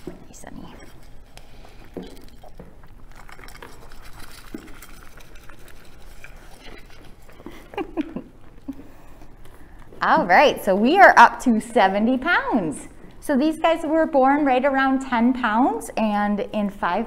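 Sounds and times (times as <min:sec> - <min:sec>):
lambs eating from a bowl: 0:00.0 - 0:13.9
hooves shuffling on rubber mat: 0:06.2 - 0:14.0.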